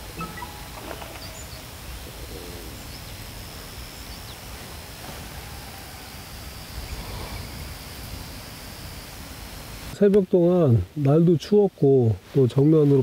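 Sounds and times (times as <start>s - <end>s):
faint high-pitched tone: 0.0s - 1.8s
faint chirps: 0.0s - 8.0s.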